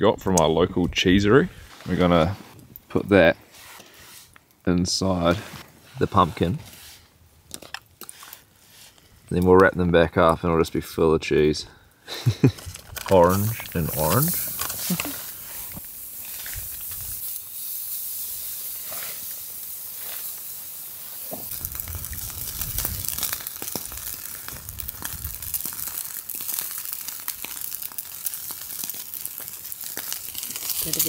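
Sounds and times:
fire crackling: 0.0 - 31.0
steaks sizzling on grill: 13.2 - 31.0
wind rumble on microphone: 21.5 - 23.3, 24.5 - 25.7.

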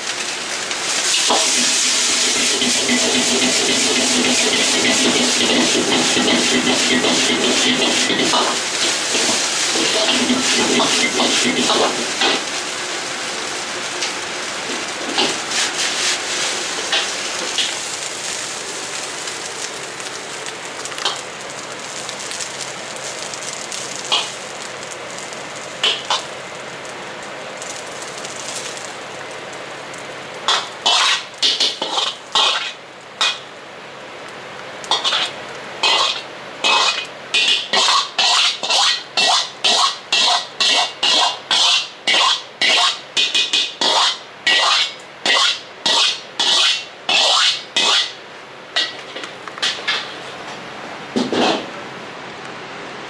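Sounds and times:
rice sizzling in a wok: 0.0 - 53.0
ladle scraping and clinking wok: 0.2 - 12.7, 14.6 - 18.4, 23.0 - 24.5, 30.5 - 33.4, 34.9 - 48.2, 48.8 - 50.4, 51.2 - 51.7.

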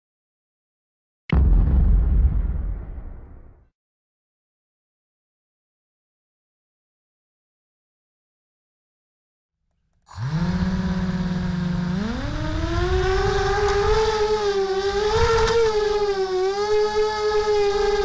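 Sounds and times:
quadcopter motors whining: 10.1 - 18.0.

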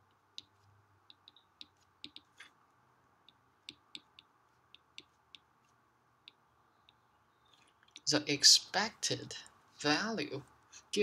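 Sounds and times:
stylus tapping on glass screen: 0.3 - 2.4, 3.2 - 5.5.

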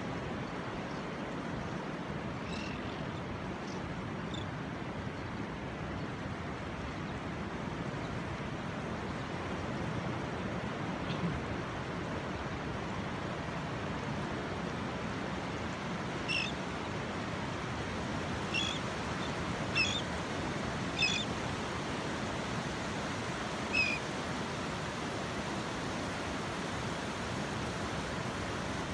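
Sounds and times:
bird short high calls: 16.3 - 16.6, 18.5 - 18.8, 19.8 - 20.1, 21.0 - 21.3, 23.7 - 24.0.

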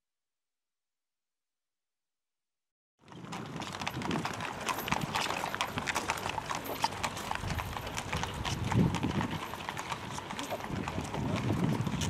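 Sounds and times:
horse hooves on pavement: 3.0 - 12.0.

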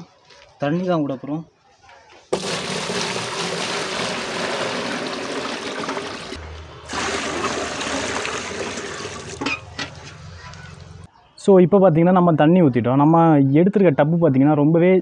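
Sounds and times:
water splashing into plastic crate: 2.4 - 9.5.

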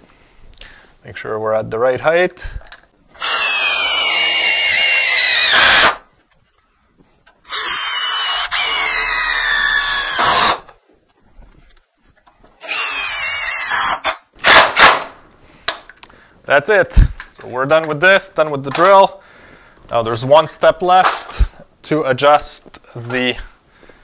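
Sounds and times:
cordless drill driving screws: 3.2 - 6.0, 7.5 - 10.7, 12.6 - 14.2.

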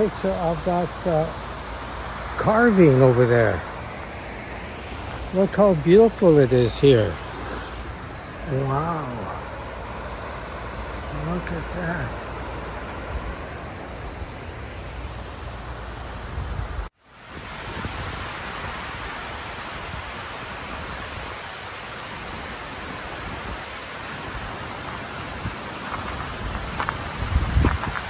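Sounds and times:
river rushing over rocks: 0.0 - 16.2.

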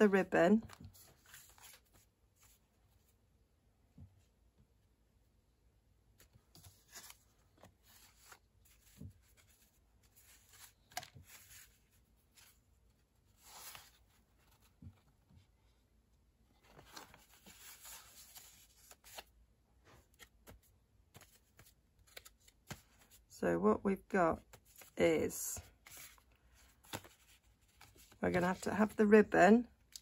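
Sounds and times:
paper rustling: 0.6 - 2.6, 6.2 - 15.5, 16.6 - 23.2, 25.6 - 29.0.

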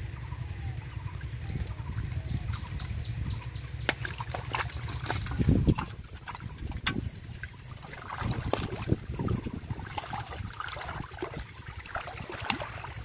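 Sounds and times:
muddy water splashing and sloshing: 0.0 - 13.0
steady low rumble: 0.0 - 13.0
wet slaps and clicks: 3.8 - 5.6.

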